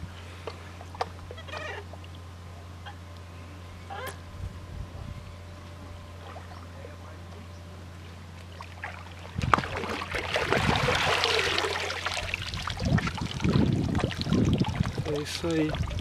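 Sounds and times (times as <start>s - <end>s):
fish splashing in water: 8.5s - 15.0s.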